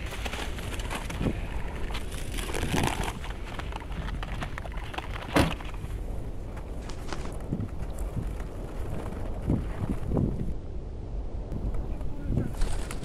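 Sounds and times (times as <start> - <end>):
wind buffeting microphone: 5.6 - 13.0.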